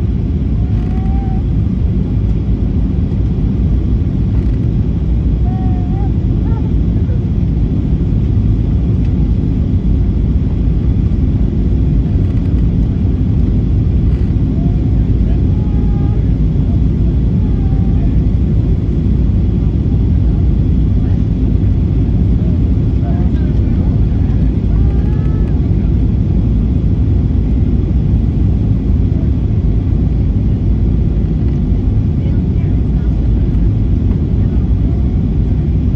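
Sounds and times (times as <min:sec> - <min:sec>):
airplane cabin rumble: 0:00.0 - 0:35.9.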